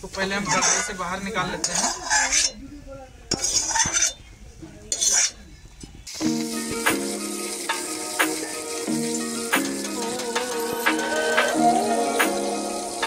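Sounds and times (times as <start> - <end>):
hot oil sizzling: 0.0 - 2.6, 3.3 - 4.2, 6.0 - 13.0
metal spoon scraping a pan: 0.5 - 1.0, 1.6 - 2.6, 3.3 - 4.3, 4.9 - 5.4
background music with steady beat: 6.2 - 13.0.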